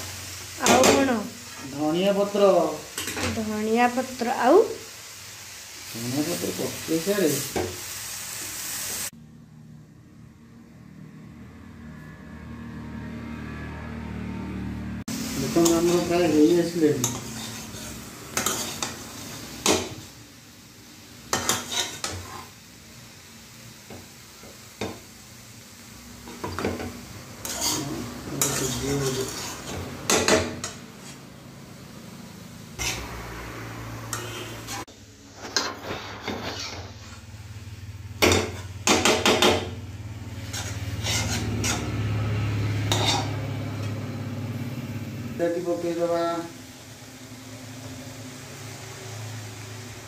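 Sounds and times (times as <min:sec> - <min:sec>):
food sizzling: 0:00.0 - 0:09.2, 0:13.0 - 0:50.0
metal spatula scraping a pan: 0:00.6 - 0:03.5, 0:15.4 - 0:20.1, 0:21.3 - 0:22.6, 0:26.2 - 0:31.3, 0:32.8 - 0:33.3, 0:34.0 - 0:37.4, 0:38.2 - 0:44.1.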